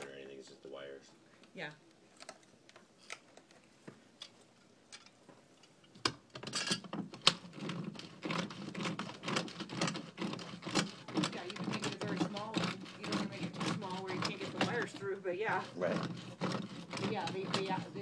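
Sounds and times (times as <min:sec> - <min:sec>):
hand tool clicking and scraping: 0:05.9 - 0:18.0.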